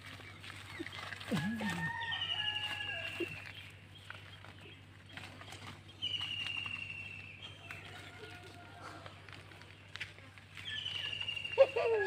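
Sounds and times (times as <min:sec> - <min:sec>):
rustles and snaps in undergrowth: 0:00.0 - 0:12.0
bird whistled call: 0:06.0 - 0:07.6, 0:10.6 - 0:12.0.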